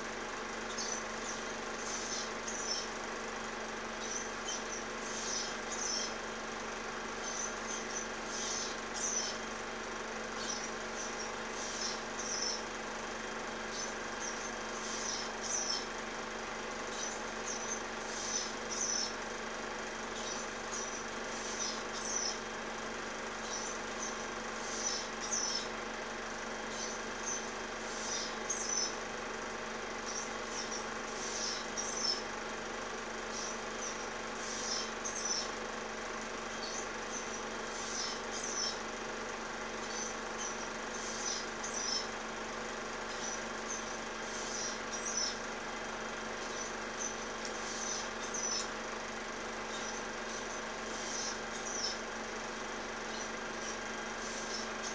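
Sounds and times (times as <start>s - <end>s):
osprey chirping calls: 4.0s - 6.2s, 13.7s - 15.9s, 36.5s - 38.8s, 43.1s - 45.4s, 46.4s - 48.8s, 49.7s - 52.0s.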